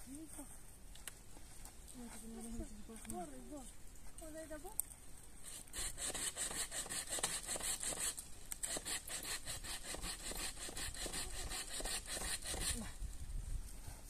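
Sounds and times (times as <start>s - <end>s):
hand saw cutting wood: 5.4s - 13.0s.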